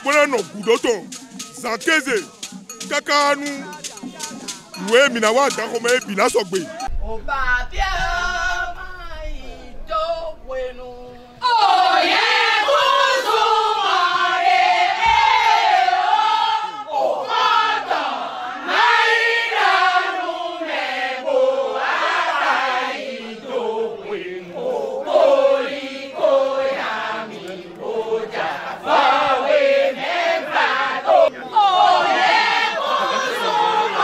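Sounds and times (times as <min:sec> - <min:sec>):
women singing a chant: 0:06.6 - 0:34.0.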